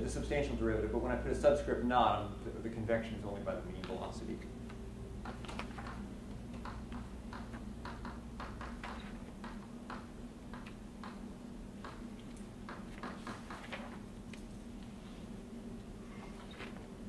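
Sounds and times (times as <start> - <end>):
low room hum: 0.0 - 17.0
pen tapping and scratching: 11.8 - 13.9.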